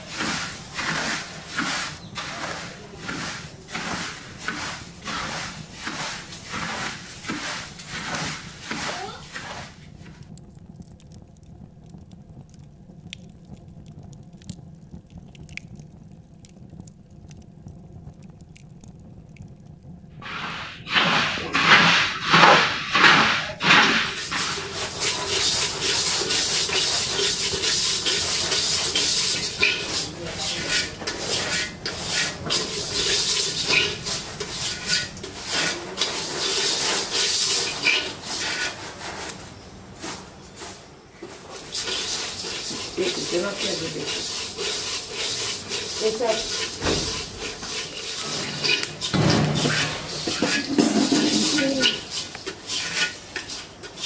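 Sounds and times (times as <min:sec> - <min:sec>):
grains scraped in metal pot: 0:00.0 - 0:10.4, 0:20.2 - 0:54.0
paddle stirring dry rice: 0:00.0 - 0:11.0, 0:20.2 - 0:54.0.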